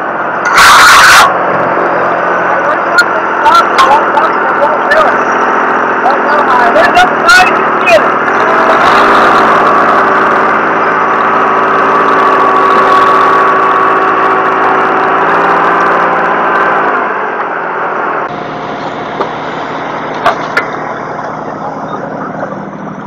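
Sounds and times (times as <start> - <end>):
tractor engine running with whine: 0.0 - 23.0.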